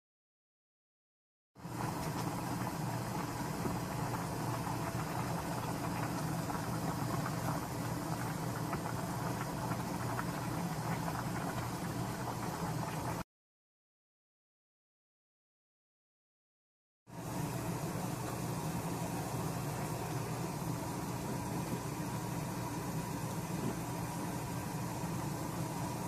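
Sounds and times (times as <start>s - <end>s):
gas stove hum: 1.6s - 13.2s, 17.1s - 26.0s
stew bubbling: 1.6s - 13.2s, 17.2s - 26.0s.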